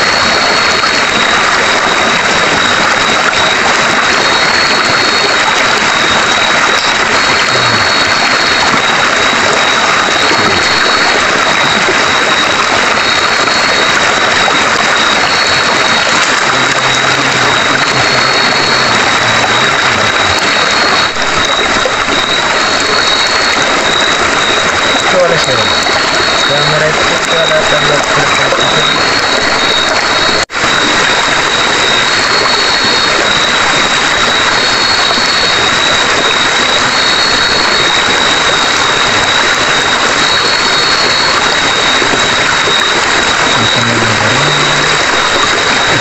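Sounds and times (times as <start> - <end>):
river flowing over rocks: 0.0 - 46.0
thin high whine: 0.0 - 46.0
higher note: 10.1 - 11.6, 15.2 - 30.5, 43.6 - 46.0.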